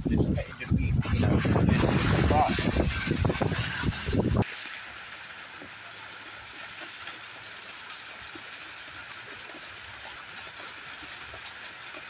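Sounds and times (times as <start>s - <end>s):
rain falling steadily: 3.3s - 12.0s.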